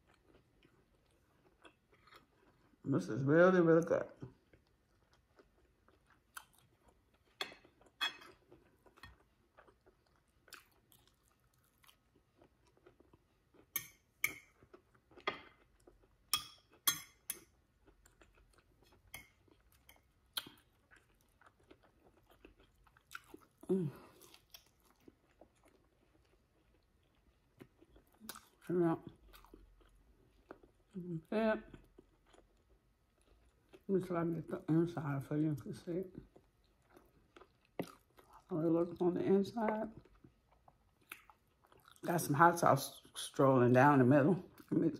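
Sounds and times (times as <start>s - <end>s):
crisp chewing crunches: 4.3s - 13.7s, 17.8s - 31.0s.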